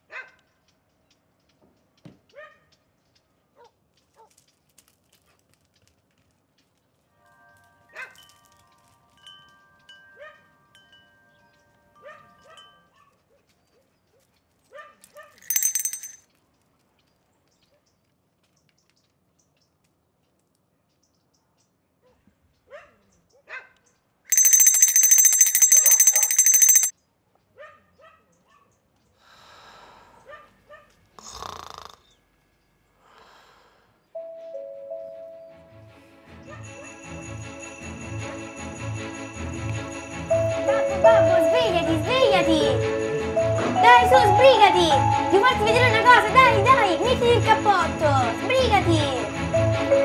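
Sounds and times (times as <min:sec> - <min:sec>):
dog barking: 0:00.0 - 0:00.4, 0:02.3 - 0:02.7, 0:08.0 - 0:08.2, 0:12.0 - 0:13.5, 0:14.7 - 0:15.4, 0:22.0 - 0:23.9, 0:27.6 - 0:28.7, 0:30.2 - 0:31.0
metal wind chimes ringing: 0:08.2 - 0:12.9, 0:15.4 - 0:16.2, 0:24.3 - 0:26.9
rapid bell ringing: 0:15.4 - 0:16.2, 0:24.3 - 0:26.9, 0:36.8 - 0:50.0.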